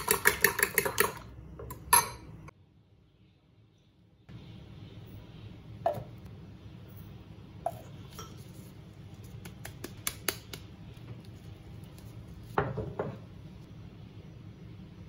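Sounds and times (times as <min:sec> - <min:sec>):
kitchenware knocks: 0:12.6 - 0:13.2.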